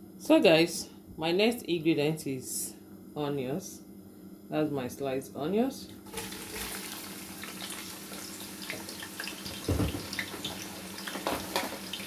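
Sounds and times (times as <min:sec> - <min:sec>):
onions sizzling in hot oil: 0:06.1 - 0:12.0
dull thump: 0:09.6 - 0:10.1.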